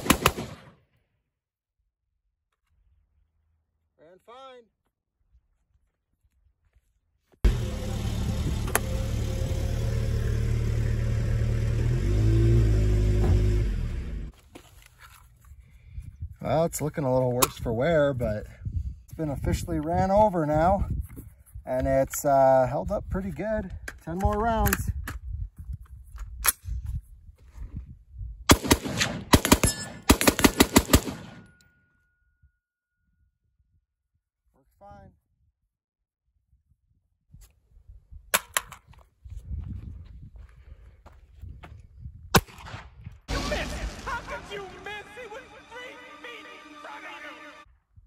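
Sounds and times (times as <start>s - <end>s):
rifle shots: 0.0s - 0.8s, 28.5s - 31.5s, 42.4s - 44.5s
truck engine running: 7.5s - 14.3s.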